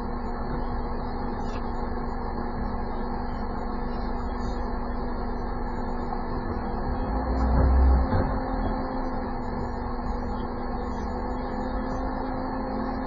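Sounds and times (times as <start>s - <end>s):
car engine idling: 0.0s - 13.0s
constant low hum: 0.0s - 13.0s.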